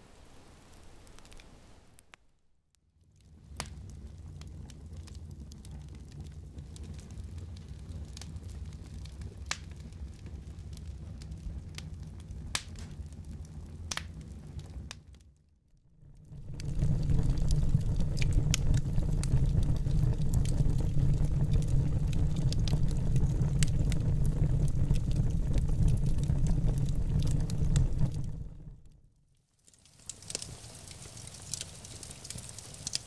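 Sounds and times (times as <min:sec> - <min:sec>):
wood fire crackling and popping: 0:00.5 - 0:02.4, 0:03.0 - 0:15.4, 0:16.0 - 0:33.0.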